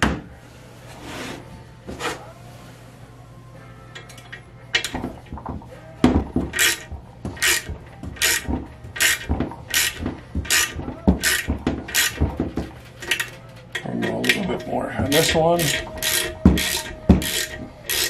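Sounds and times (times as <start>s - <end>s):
hand ratchet clicking: 4.0s - 5.5s, 6.4s - 18.0s
dull knocks: 5.0s - 12.8s.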